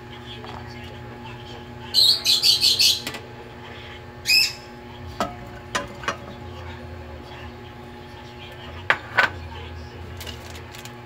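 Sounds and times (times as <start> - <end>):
steady low hum: 0.0 - 11.0
bird chirping: 2.0 - 3.0.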